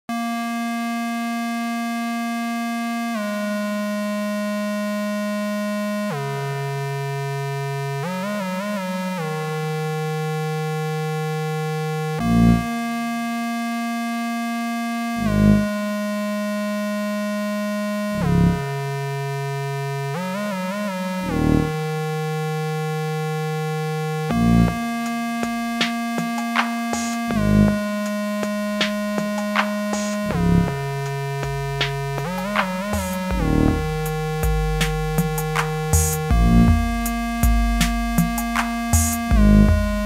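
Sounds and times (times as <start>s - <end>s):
buzzy synthesizer bass notes: 0.1s - 40.0s
short low thumps: 28.8s - 40.0s.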